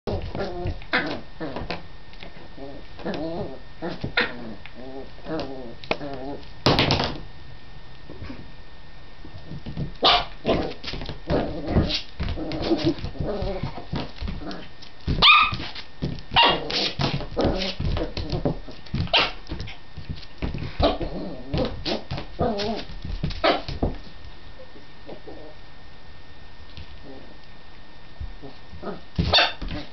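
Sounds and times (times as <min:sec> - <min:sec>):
puppy barking and yipping: 0:10.0 - 0:10.3, 0:15.2 - 0:15.7, 0:16.4 - 0:16.8, 0:29.3 - 0:29.6.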